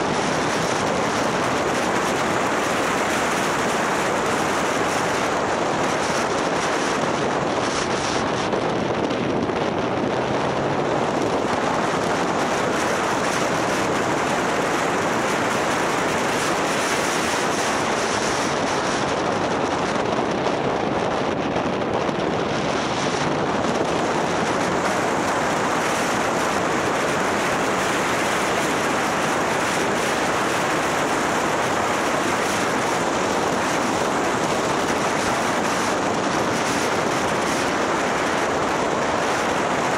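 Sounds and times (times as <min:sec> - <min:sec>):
road noise: 0:00.0 - 0:39.9
wind rushing over microphone: 0:00.0 - 0:39.9.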